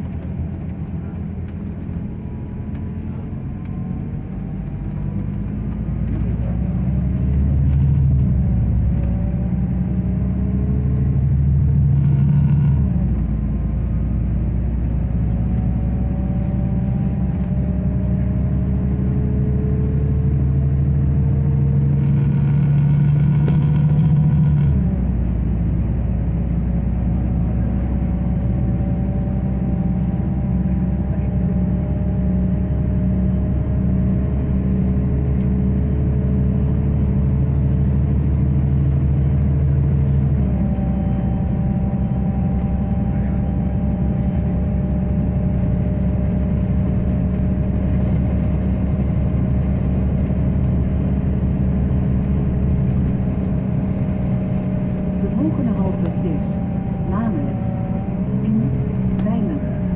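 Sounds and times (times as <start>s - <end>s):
bus engine and road noise: 0.0s - 59.9s
faint engine whine: 0.0s - 59.9s.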